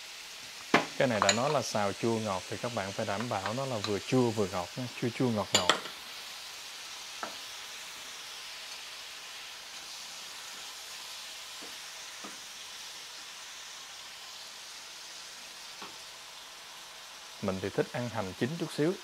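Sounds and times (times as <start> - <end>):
food sizzling in a frying pan: 0.0 - 19.0
wooden spatula knocking on pan: 0.7 - 1.4.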